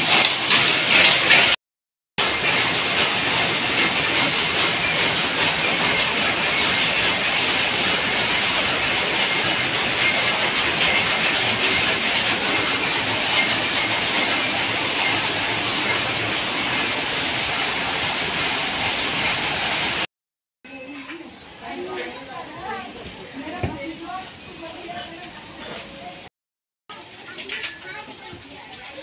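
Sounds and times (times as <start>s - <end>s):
powerlooms clattering: 0.0s - 1.6s, 2.2s - 20.1s.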